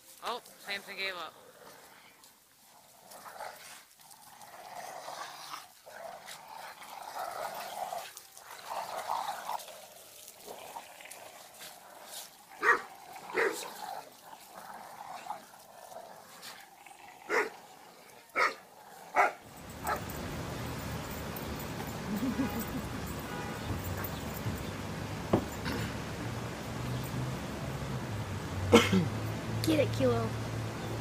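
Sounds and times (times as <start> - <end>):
dogs growling: 0.4 - 27.3
dog barking sharply: 12.6 - 12.8, 13.4 - 13.6, 18.4 - 18.6, 19.2 - 20.1.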